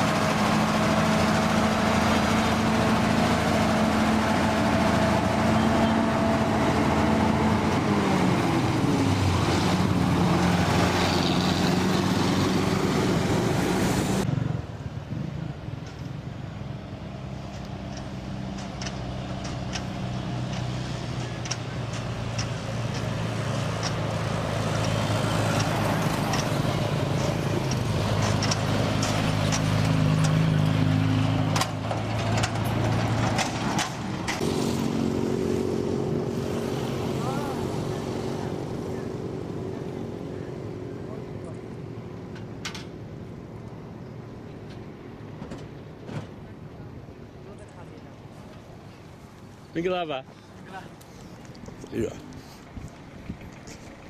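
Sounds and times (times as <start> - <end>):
diesel lorry engines passing: 0.0 - 54.0.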